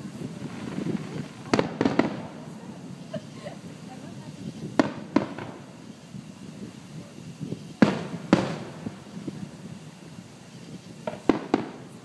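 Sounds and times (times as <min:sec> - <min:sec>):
firework booms with echo: 0:00.0 - 0:12.0
sharp firework bangs: 0:00.0 - 0:12.0.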